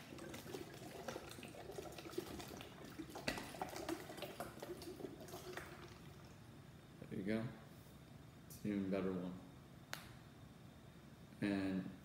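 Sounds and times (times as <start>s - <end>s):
water draining between bottles: 0.0s - 6.5s.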